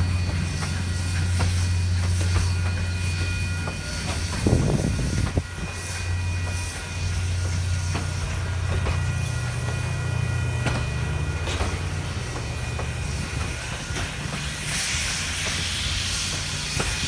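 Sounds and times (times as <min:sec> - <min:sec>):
hiss: 0:00.0 - 0:08.5, 0:12.0 - 0:17.0
low rumble of train cars: 0:00.0 - 0:17.0
train wheels clicking over joints: 0:00.0 - 0:17.0.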